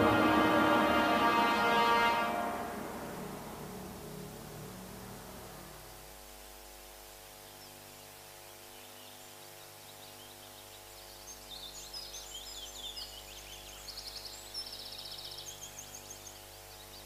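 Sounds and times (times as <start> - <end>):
low electrical hum: 0.0 - 17.0
small birds chirping: 7.3 - 17.0.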